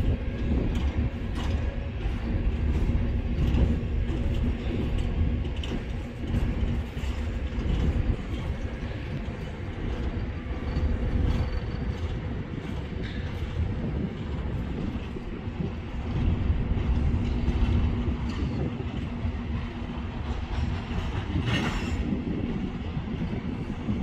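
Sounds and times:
clicks and clanks of railcars: 0:00.0 - 0:24.0
steel wheels rumbling on rails: 0:00.0 - 0:24.0.

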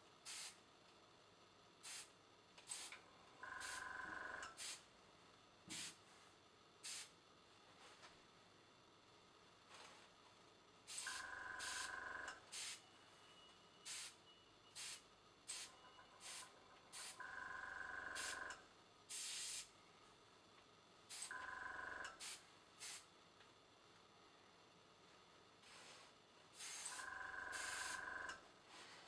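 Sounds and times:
compressor humming whine: 0:00.0 - 0:29.0
airbrush spraying hisses: 0:00.3 - 0:00.6, 0:01.8 - 0:02.1, 0:05.7 - 0:06.0, 0:06.8 - 0:07.1, 0:12.5 - 0:12.8, 0:13.9 - 0:14.1, 0:14.8 - 0:16.4, 0:19.1 - 0:19.7, 0:22.2 - 0:23.0, 0:26.6 - 0:27.0.

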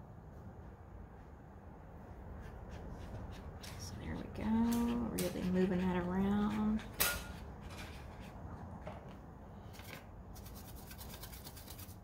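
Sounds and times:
brush scrubbing in paint well: 0:02.1 - 0:06.9, 0:10.3 - 0:12.0.

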